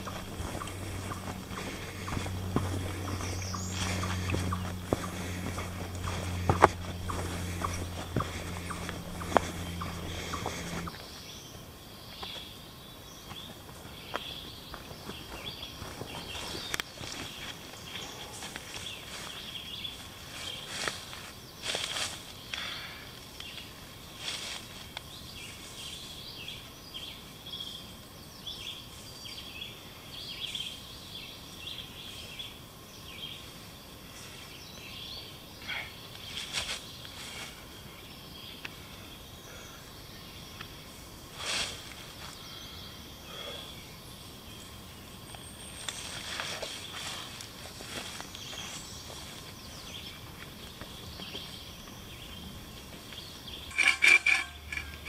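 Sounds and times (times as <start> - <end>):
rustle of dry leaves and gear: 0.0 - 11.4, 12.2 - 27.2, 36.1 - 39.0, 40.8 - 42.8, 45.2 - 55.0
birds chirping and singing: 0.0 - 21.0, 47.9 - 55.0.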